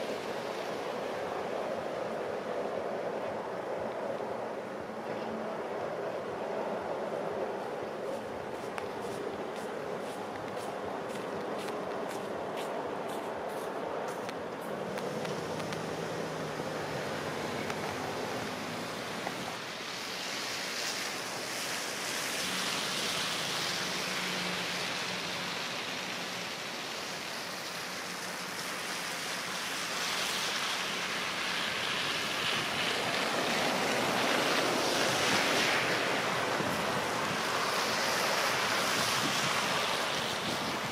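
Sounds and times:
diesel engine hum: 0:00.0 - 0:19.6
tyres hissing through wet snow: 0:06.6 - 0:40.9.

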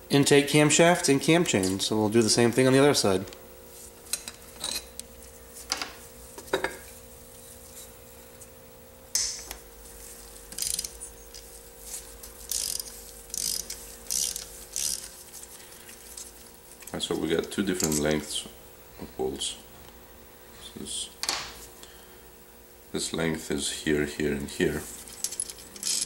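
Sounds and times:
socket ratchet clicking: 0:10.6 - 0:11.0, 0:12.5 - 0:15.1.

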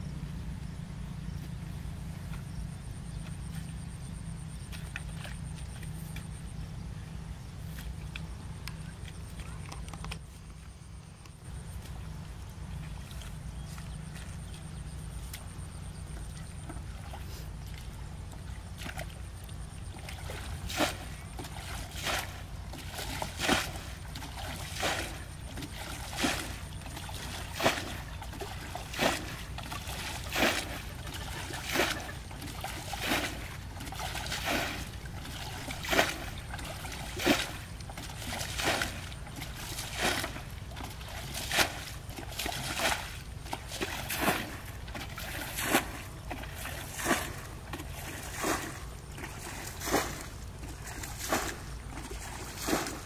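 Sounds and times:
steady low hum: 0:00.0 - 0:53.0
water splashing from bucket: 0:18.6 - 0:53.0.

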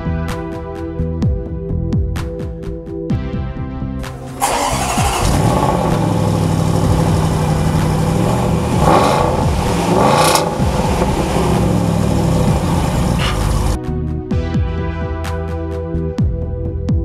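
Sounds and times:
car engine idling and revving: 0:04.1 - 0:13.8.

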